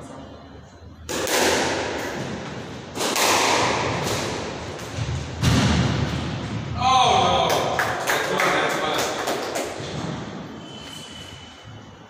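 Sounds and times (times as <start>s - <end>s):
squash ball hit by rackets: 1.1s - 6.6s.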